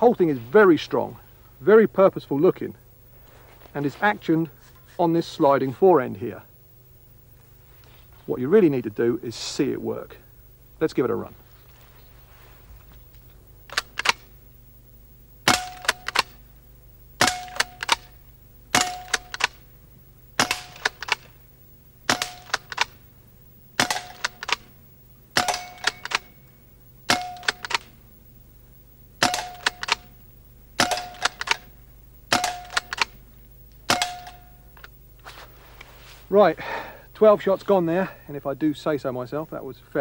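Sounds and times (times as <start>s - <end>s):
air rifle shots: 13.7s - 14.3s, 15.4s - 16.4s, 17.2s - 19.6s, 20.4s - 21.4s, 22.1s - 23.0s, 23.8s - 24.7s, 25.3s - 26.4s, 27.1s - 28.0s, 29.2s - 30.2s, 30.8s - 33.2s, 33.8s - 34.6s
metallic ring: 25.4s - 26.5s, 33.9s - 34.7s
cocking action clacks: 32.4s - 33.1s.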